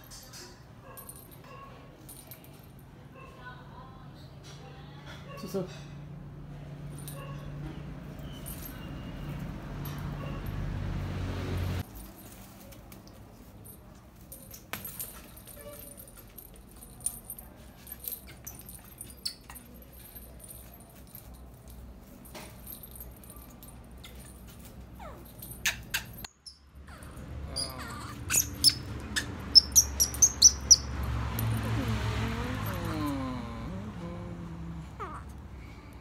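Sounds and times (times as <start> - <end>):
monkey high-pitched chirps: 25.0 - 31.0.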